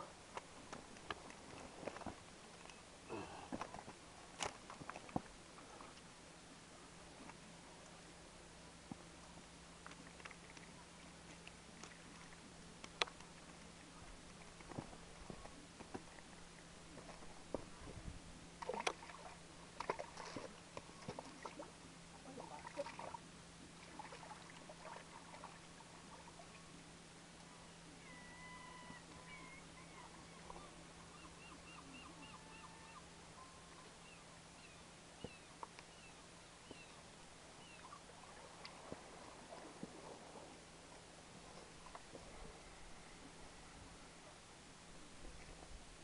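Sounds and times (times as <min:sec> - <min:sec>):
faint bird calls: 0:27.9 - 0:38.4.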